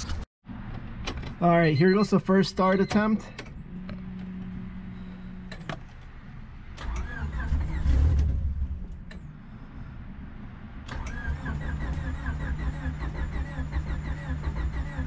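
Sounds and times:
starter cranking engine: 10.9s - 15.0s.

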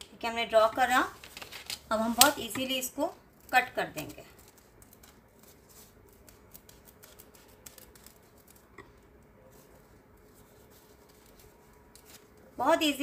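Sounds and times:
scissors snipping foam: 3.4s - 8.7s.

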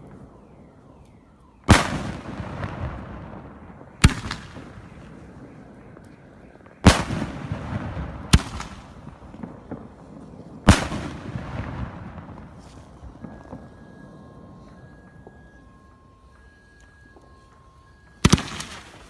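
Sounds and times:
firework bangs with echo: 1.7s - 13.9s, 18.2s - 19.0s.

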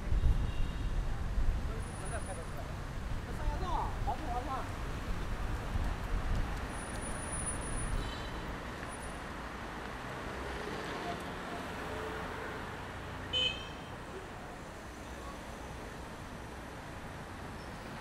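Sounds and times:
car horn toot: 13.3s - 13.9s.

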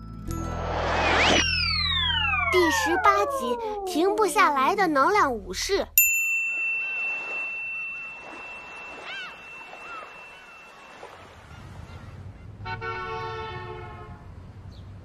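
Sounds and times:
steady high tone: 0.3s - 4.7s, 6.4s - 11.2s
rising and falling chirps: 0.4s - 4.3s
vehicle horn: 11.4s - 14.3s.

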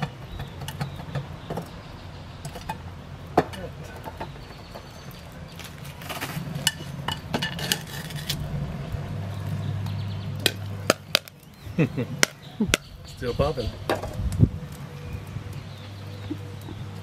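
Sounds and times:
popcorn popping: 10.4s - 11.5s.

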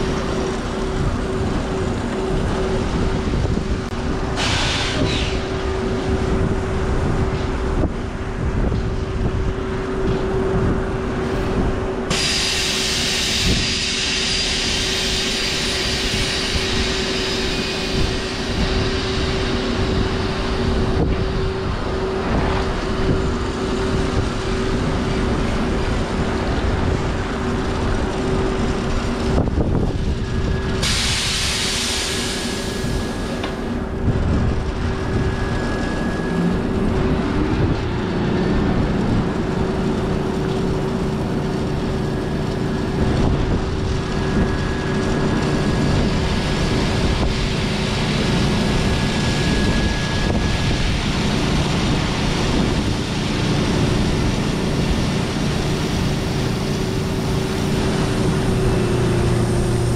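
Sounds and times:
diesel truck running: 0.0s - 59.9s
steady whine: 0.0s - 59.9s
hiss: 4.3s - 5.8s, 11.2s - 21.1s, 29.8s - 33.8s, 40.5s - 59.9s.

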